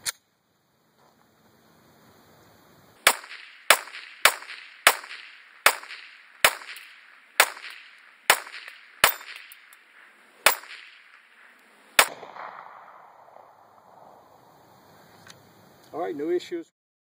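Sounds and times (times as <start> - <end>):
pistol shots with echo: 3.0 - 14.3.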